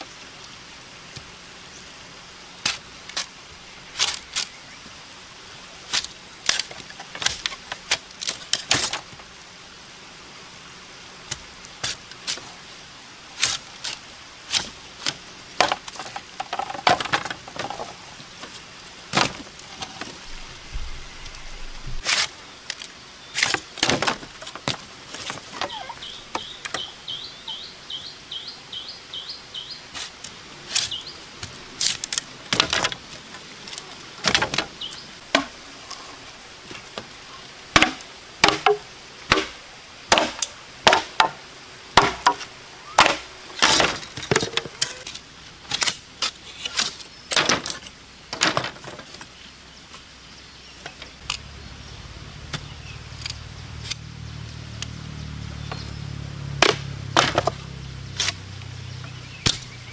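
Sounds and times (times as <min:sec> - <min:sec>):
machete chopping bamboo: 0:35.3 - 0:35.6, 0:37.7 - 0:41.4, 0:42.0 - 0:44.8, 0:56.5 - 0:57.6, 0:59.4 - 0:59.8.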